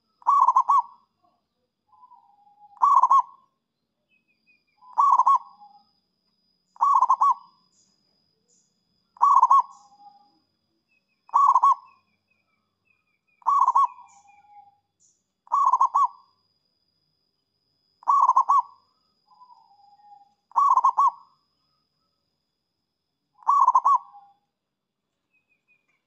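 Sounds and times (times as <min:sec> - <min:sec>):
dove cooing: 0:00.0 - 0:01.0, 0:01.9 - 0:03.4, 0:04.8 - 0:05.7, 0:06.8 - 0:07.5, 0:09.2 - 0:10.2, 0:11.3 - 0:12.0, 0:13.4 - 0:14.6, 0:15.5 - 0:16.2, 0:18.0 - 0:18.8, 0:19.4 - 0:21.3, 0:23.4 - 0:24.3.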